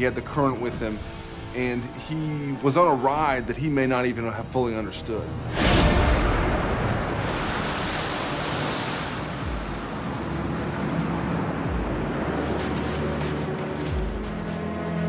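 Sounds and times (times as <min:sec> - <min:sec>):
waves breaking on shore: 0:05.6 - 0:14.6.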